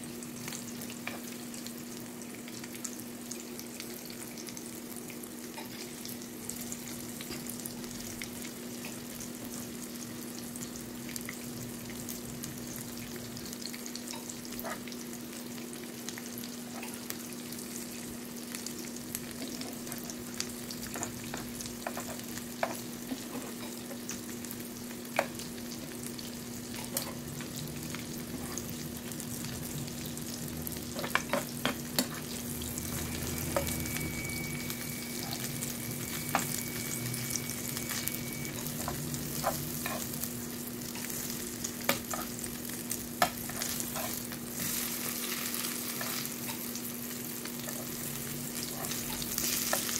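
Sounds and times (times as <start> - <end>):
meat sizzling in a frying pan: 0.0 - 49.9
low hum: 32.0 - 40.5.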